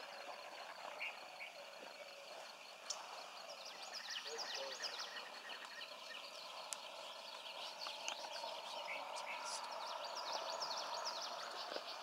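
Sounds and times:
faint steady hum: 0.0s - 12.0s
small birds chirping: 0.2s - 12.0s.

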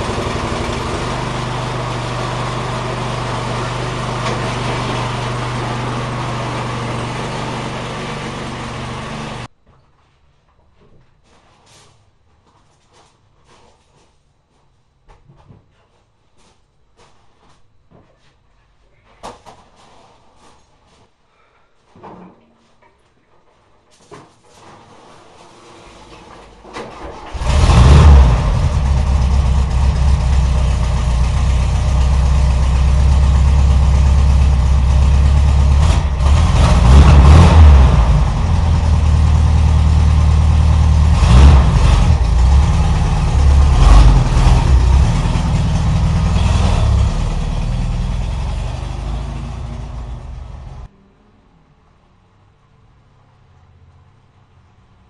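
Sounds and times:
engine running: 0.0s - 9.5s, 26.0s - 51.1s.

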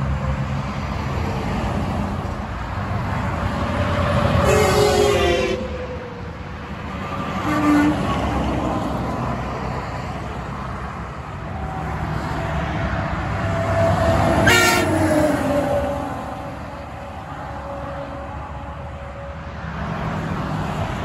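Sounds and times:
trucks passing on highway: 0.0s - 21.0s
truck air horn blast: 4.0s - 5.8s, 7.3s - 8.3s, 13.4s - 15.9s.

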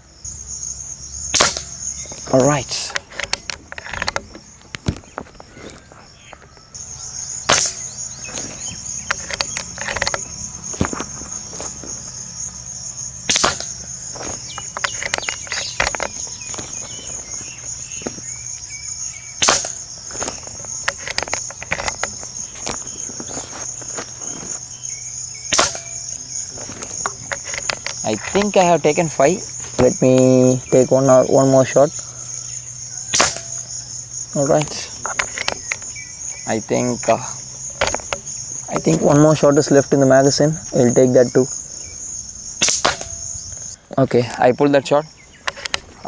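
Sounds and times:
crickets chirring: 0.0s - 46.0s
air rifle shots: 1.3s - 1.8s, 7.4s - 8.5s, 13.2s - 16.1s, 19.4s - 21.3s, 25.5s - 26.1s, 33.1s - 33.6s, 42.6s - 43.2s.

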